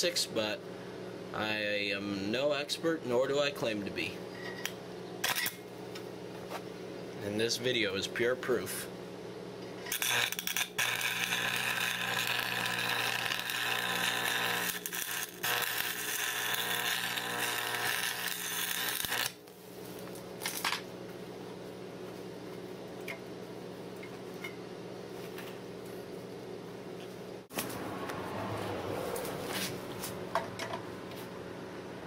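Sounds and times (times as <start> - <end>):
steady hum: 0.0 - 28.0
welding arc crackling: 5.2 - 5.6, 9.9 - 20.6.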